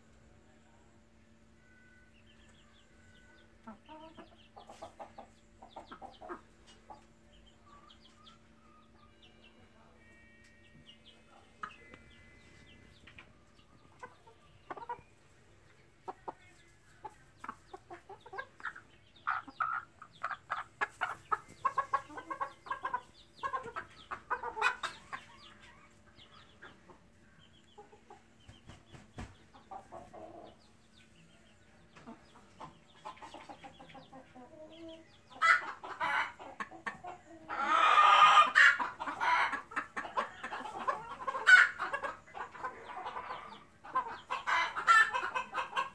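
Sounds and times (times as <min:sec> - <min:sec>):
chickens clucking: 0:02.1 - 0:45.9
chicken calling: 0:17.0 - 0:26.9, 0:33.0 - 0:45.9.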